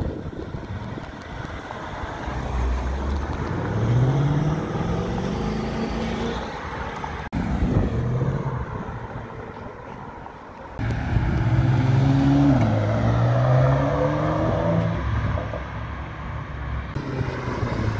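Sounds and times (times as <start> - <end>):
car engine accelerating: 2.2 - 6.8, 10.8 - 15.6.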